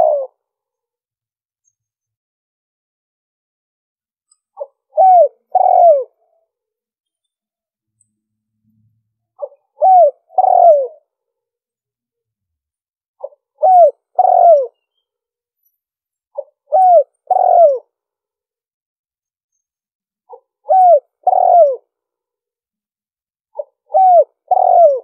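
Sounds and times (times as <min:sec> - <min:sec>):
dove cooing: 0:00.0 - 0:00.4, 0:04.6 - 0:06.2, 0:09.4 - 0:11.1, 0:13.2 - 0:14.8, 0:16.4 - 0:17.9, 0:20.3 - 0:21.9, 0:23.6 - 0:25.0.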